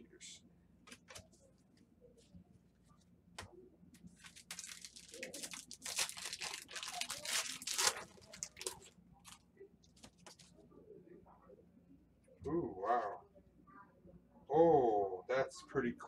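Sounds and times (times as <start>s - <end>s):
foil wrapper tearing and crinkling: 4.2s - 9.4s.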